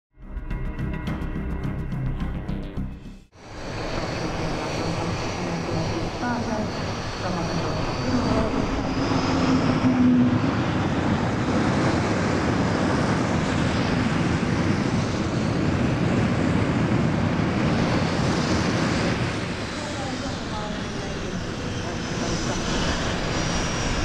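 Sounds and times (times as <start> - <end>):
jet engines landing: 3.4 - 24.0.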